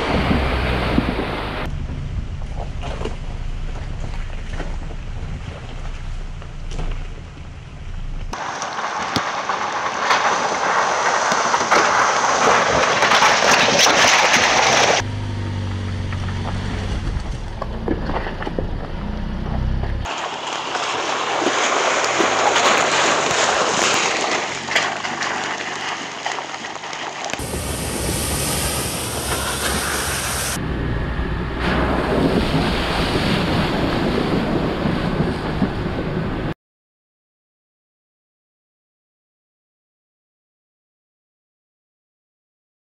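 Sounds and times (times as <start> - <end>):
wind on microphone: 0.0 - 1.7, 27.4 - 36.5
engine low hum: 0.0 - 8.4, 15.0 - 20.1, 27.4 - 33.4
tyres rushing through mud: 0.0 - 36.6.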